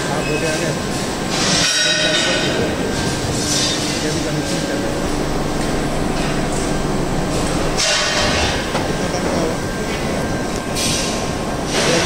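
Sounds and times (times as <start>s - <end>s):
machinery rumbling and rattling: 0.0s - 12.0s.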